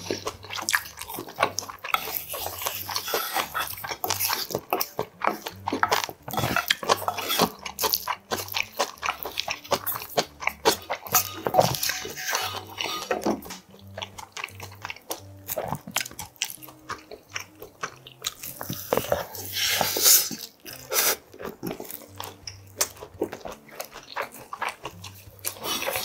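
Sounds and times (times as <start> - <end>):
chewing and wet mouth sounds: 0.0 - 26.0
wooden spoon scraping a bowl: 0.8 - 13.6, 18.5 - 21.3, 25.5 - 26.0.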